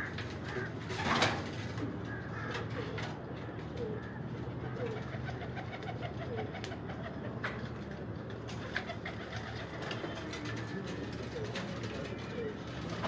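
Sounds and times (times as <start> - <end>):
pigeons cooing: 0.0 - 7.4, 8.5 - 13.0.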